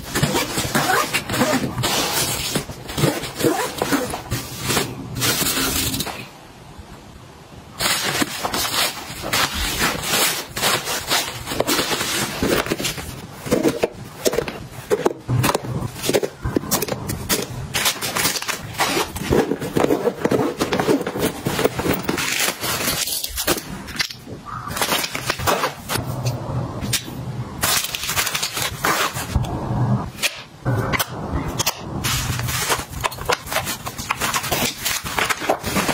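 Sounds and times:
rustling of fabric pouches: 0.0s - 6.2s, 7.7s - 24.1s, 32.0s - 35.9s.

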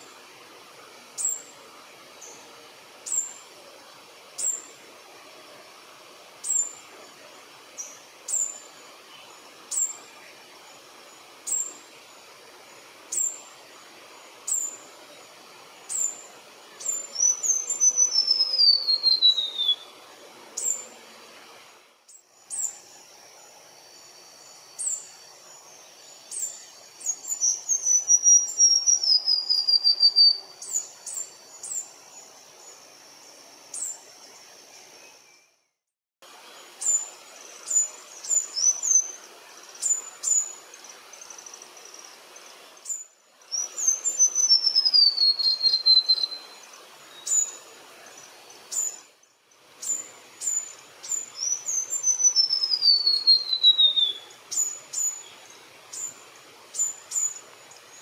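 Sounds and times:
bird singing descending whistles: 16.8s - 19.9s, 26.4s - 31.8s, 43.5s - 46.6s, 49.8s - 55.2s.

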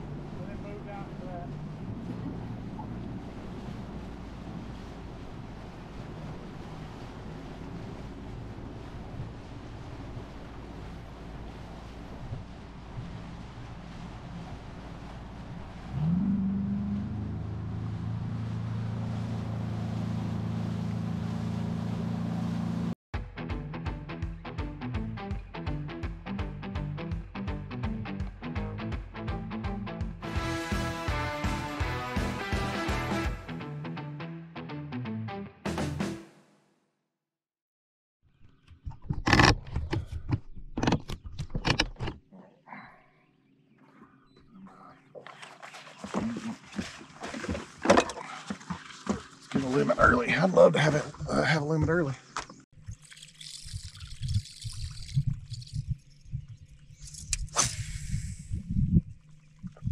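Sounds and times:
outboard motor revving: 0.0s - 23.0s
rush of wind and water: 0.0s - 23.0s.

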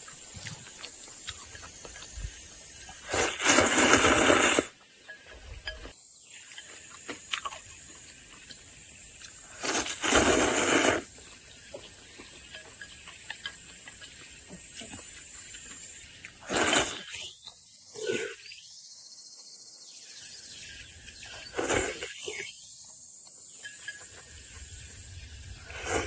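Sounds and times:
faint chewing clicks: 0.0s - 3.0s
person slurping noodles: 3.0s - 4.7s, 9.5s - 11.1s, 16.4s - 17.2s, 21.4s - 22.4s, 25.6s - 26.0s.

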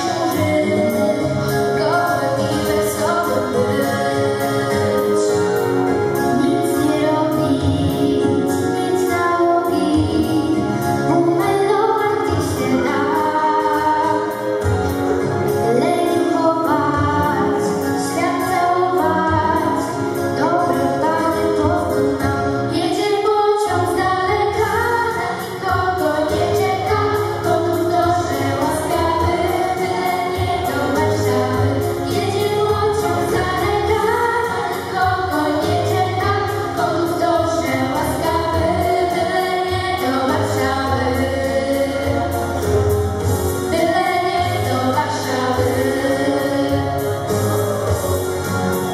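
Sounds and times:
girls singing into microphones: 0.0s - 48.8s
backing music with steady beat: 0.0s - 48.9s.

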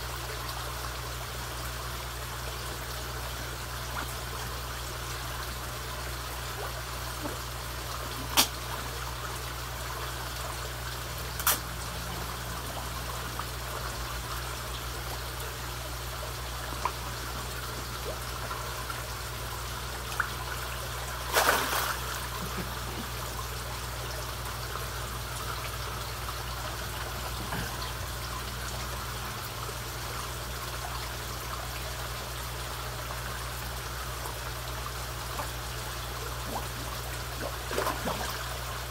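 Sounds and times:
water trickling: 0.0s - 38.9s
fish splashing at surface: 21.2s - 23.0s.

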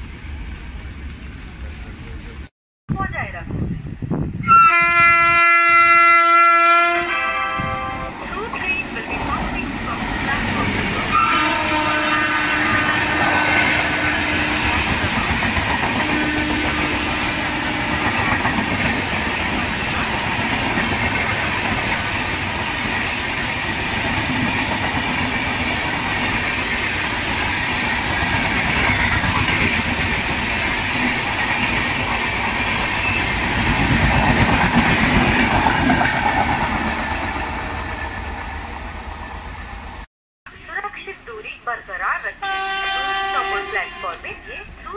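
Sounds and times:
train wheels rumbling on rails: 7.6s - 40.1s
clickety-clack over rail joints: 17.7s - 37.4s.

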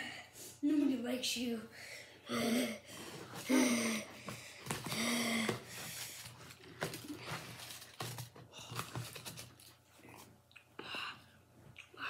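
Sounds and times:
rustling: 5.8s - 10.2s.

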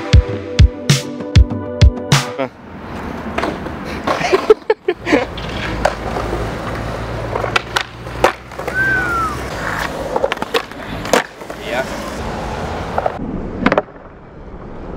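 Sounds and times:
skateboard wheels rolling on concrete: 2.5s - 14.9s
skateboard clacks: 3.2s - 12.2s, 12.9s - 14.1s
falling whistle or squeak: 8.7s - 9.4s.

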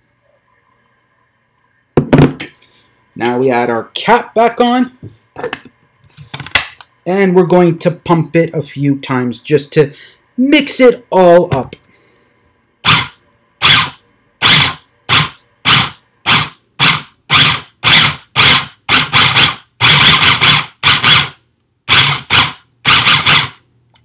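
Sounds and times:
food processor pulsing: 12.8s - 21.3s, 21.9s - 23.6s.

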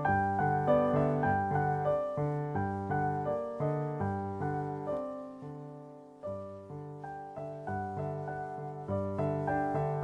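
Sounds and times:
background piano music: 0.0s - 10.0s.

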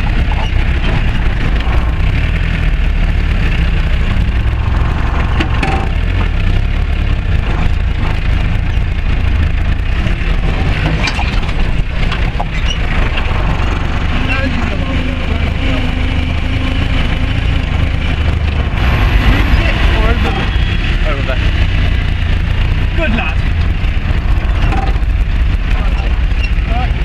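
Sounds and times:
body and fittings rattling: 0.0s - 2.5s, 3.4s - 15.7s, 21.1s - 27.0s
truck engine running: 0.0s - 27.0s.

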